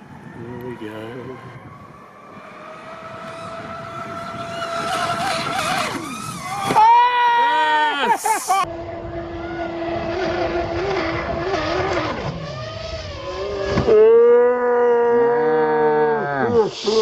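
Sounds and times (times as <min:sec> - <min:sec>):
electric boat motor whining: 0:00.2 - 0:14.8.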